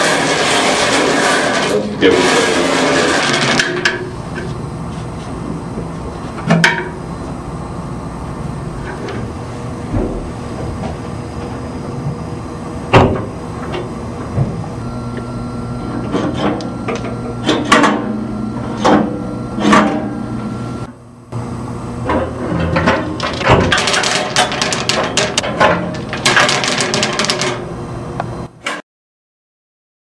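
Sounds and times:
balls tumbling clatter: 0:02.1 - 0:04.5, 0:22.7 - 0:27.6
bingo balls clacking: 0:23.0 - 0:27.6.

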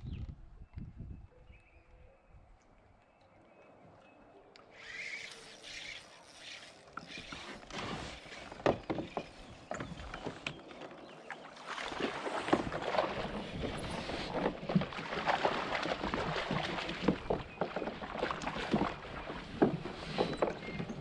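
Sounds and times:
water splashing around kayak: 0:05.3 - 0:21.0
knocks and clicks against hull: 0:06.9 - 0:11.0, 0:11.9 - 0:21.0.

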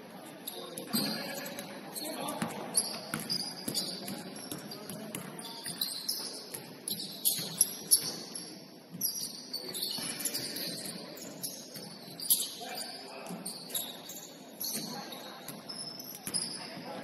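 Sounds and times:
sneakers squeaking on court: 0:00.4 - 0:17.0
basketball bouncing: 0:03.1 - 0:05.8.

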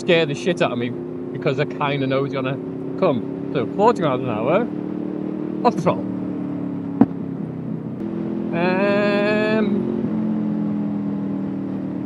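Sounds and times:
motorcycle engine on overrun: 0:00.0 - 0:12.0
exhaust pop: 0:07.0 - 0:07.2.

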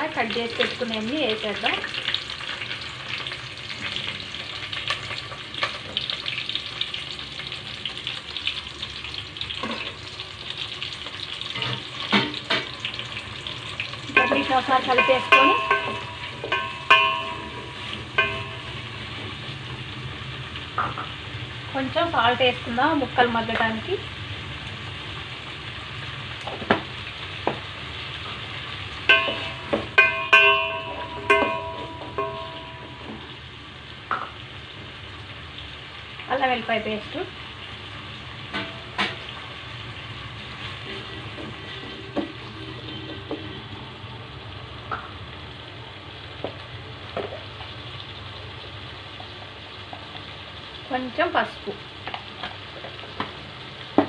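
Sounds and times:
vegetables sizzling in oil: 0:00.0 - 0:54.0
wooden spatula knocking metal pot: 0:14.1 - 0:18.8, 0:29.1 - 0:33.3.

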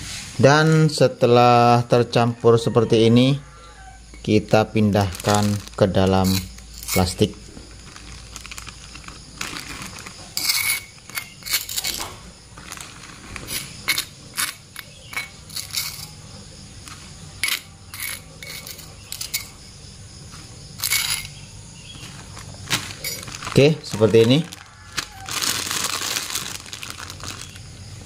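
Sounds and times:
plastic bag crinkling: 0:04.4 - 0:12.0, 0:12.6 - 0:13.7, 0:22.0 - 0:27.9
metal spoon scraping stone mortar: 0:06.2 - 0:07.2, 0:10.4 - 0:12.1, 0:13.5 - 0:16.2, 0:17.4 - 0:19.5, 0:20.8 - 0:21.4.

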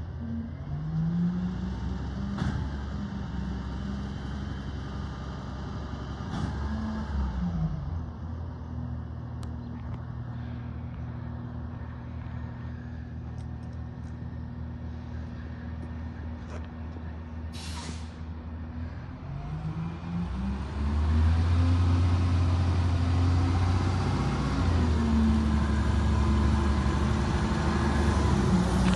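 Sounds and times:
truck engine revving: 0:19.1 - 0:28.9.

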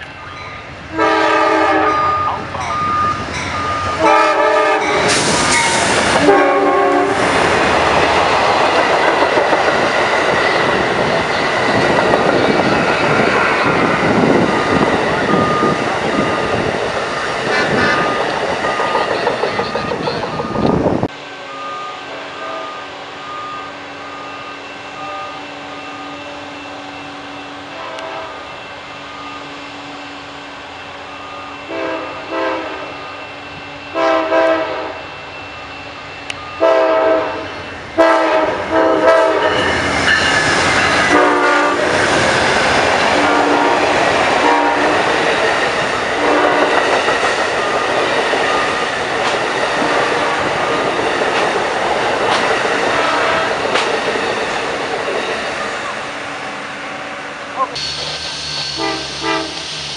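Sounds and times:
train passing on rails: 0:00.0 - 0:59.9
train horn blasts: 0:00.9 - 0:02.4, 0:03.8 - 0:05.2, 0:06.1 - 0:07.2, 0:21.2 - 0:29.5, 0:31.1 - 0:35.4, 0:36.3 - 0:39.7, 0:41.0 - 0:41.9, 0:43.1 - 0:45.1, 0:46.2 - 0:46.8, 0:52.9 - 0:53.6, 0:58.6 - 0:59.7.

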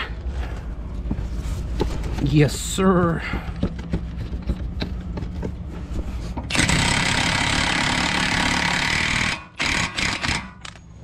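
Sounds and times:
impact wrench hammering: 0:06.5 - 0:10.6.

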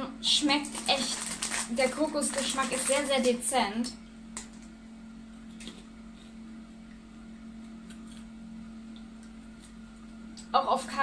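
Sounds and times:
popcorn chewing crunches: 0:00.6 - 0:03.5, 0:07.7 - 0:08.4, 0:09.0 - 0:10.2.

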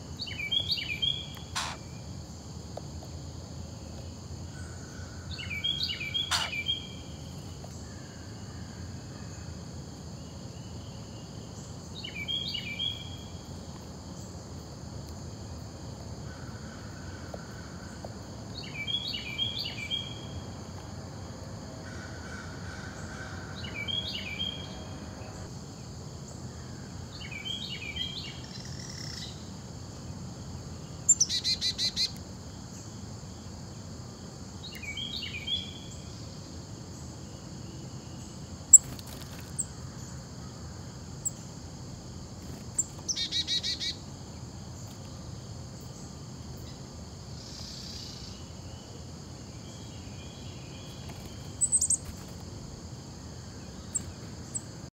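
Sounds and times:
insect drone: 0:00.0 - 0:54.9
songbirds chirping: 0:00.0 - 0:54.9
bird rattling calls: 0:01.5 - 0:01.8, 0:06.3 - 0:06.5.

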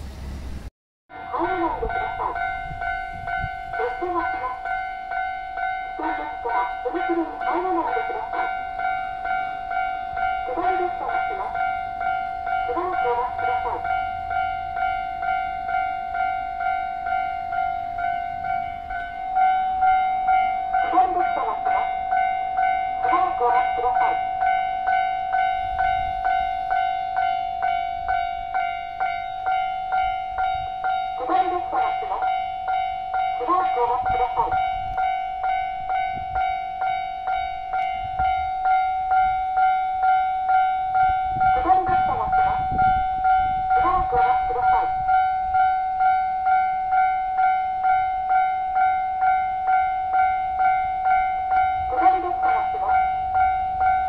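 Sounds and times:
level crossing bell ringing: 0:01.1 - 0:54.0
recorded voice announcement: 0:01.2 - 0:02.4, 0:03.8 - 0:04.6, 0:06.0 - 0:08.6, 0:10.4 - 0:11.6, 0:12.6 - 0:13.9, 0:20.8 - 0:21.9, 0:23.0 - 0:24.3, 0:31.2 - 0:32.3, 0:33.4 - 0:34.6, 0:41.5 - 0:42.7, 0:43.7 - 0:45.0, 0:51.8 - 0:53.1.

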